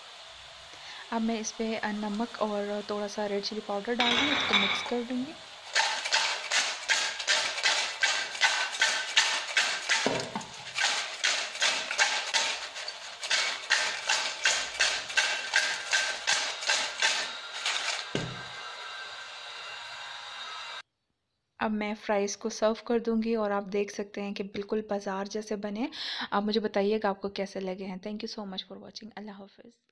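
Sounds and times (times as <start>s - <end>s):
bowl knock: 4.0s - 5.0s
potato chips rattling in steel bowl: 4.1s - 18.2s.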